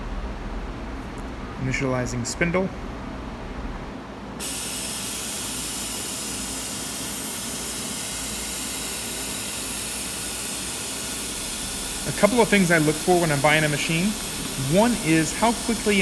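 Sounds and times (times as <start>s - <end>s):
machine air hiss: 4.4s - 16.0s.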